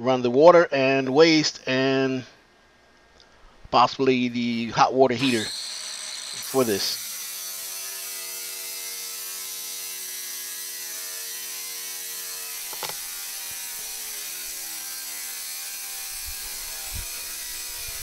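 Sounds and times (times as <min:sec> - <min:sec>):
angle grinder cutting steel: 0:04.6 - 0:18.0.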